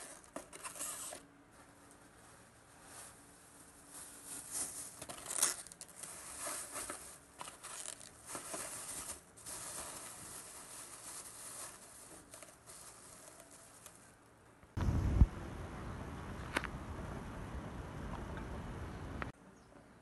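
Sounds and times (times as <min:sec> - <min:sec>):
plastic bag crinkling: 0:01.8 - 0:14.1.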